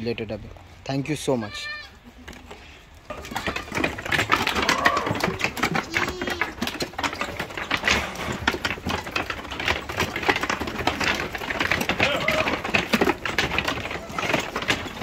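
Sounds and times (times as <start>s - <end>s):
goat hooves clattering: 0.0s - 15.0s
faint goat bleats: 1.4s - 2.1s.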